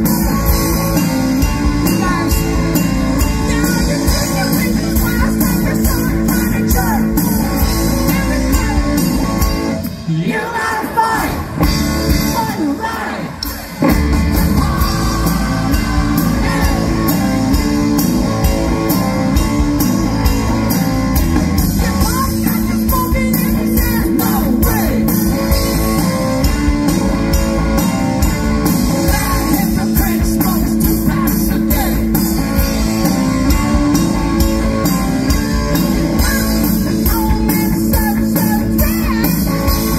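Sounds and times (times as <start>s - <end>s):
drum kit: 0.0s - 10.1s, 10.8s - 39.9s
bass guitar: 0.0s - 10.2s, 11.2s - 39.9s
electric guitar: 0.0s - 10.3s, 11.2s - 39.9s
person singing lead vocals: 0.0s - 18.0s, 21.6s - 26.0s, 29.0s - 32.2s, 36.1s - 39.9s.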